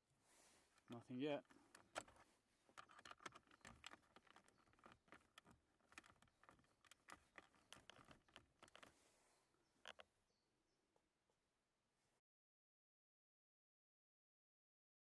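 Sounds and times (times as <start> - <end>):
faint small clicks and taps: 0.8 - 8.9, 9.8 - 10.1.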